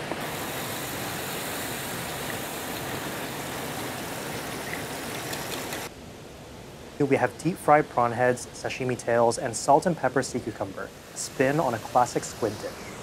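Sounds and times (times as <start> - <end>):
deep-frying in hot oil: 0.0 - 5.9, 9.7 - 13.0.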